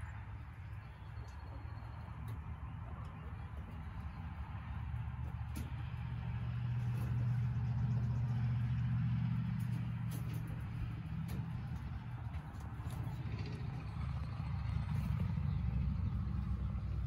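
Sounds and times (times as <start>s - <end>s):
low engine hum: 0.0s - 17.0s.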